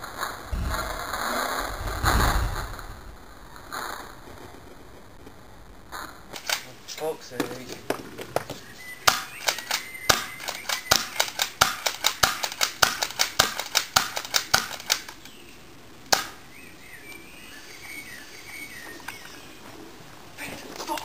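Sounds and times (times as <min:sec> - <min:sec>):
birds chirping: 0:00.5 - 0:05.2, 0:06.7 - 0:12.2, 0:15.0 - 0:21.0.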